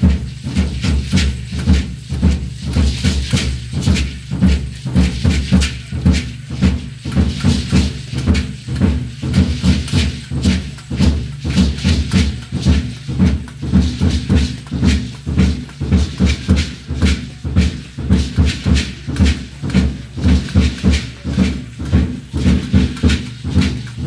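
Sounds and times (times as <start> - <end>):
drum beating fast rhythm: 0.0 - 24.0
hand rattles shaking: 0.0 - 24.0.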